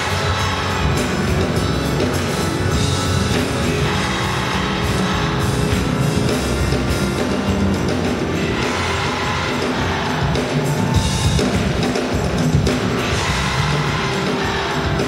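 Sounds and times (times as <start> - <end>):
drum kit: 0.0 - 15.0
gospel choir singing with band: 0.0 - 15.0.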